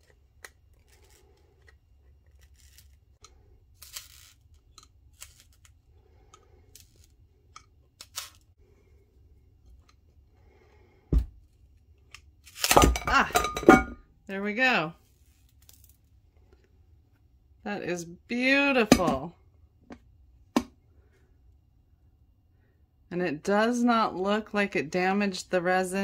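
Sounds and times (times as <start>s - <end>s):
faint clicks and scratches: 0.0s - 8.5s.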